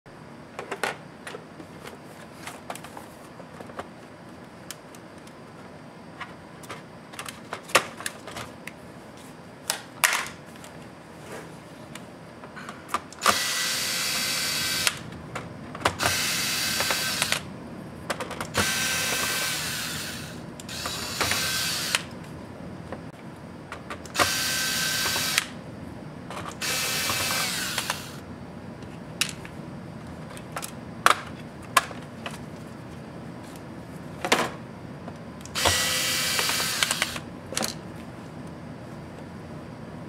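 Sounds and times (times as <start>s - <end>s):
cordless electric screwdriver running: 13.2s - 15.0s, 16.0s - 17.4s, 18.6s - 22.1s, 24.2s - 25.5s, 26.6s - 28.2s, 35.5s - 37.2s.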